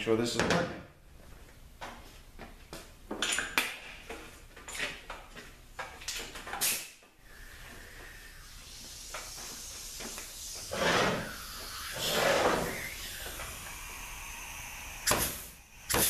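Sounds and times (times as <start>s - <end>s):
faint hiss: 6.6s - 16.0s.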